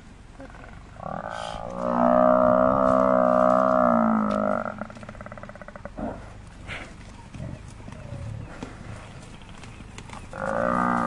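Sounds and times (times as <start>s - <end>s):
buffalo bellowing in distress: 0.4s - 6.2s, 10.3s - 11.0s.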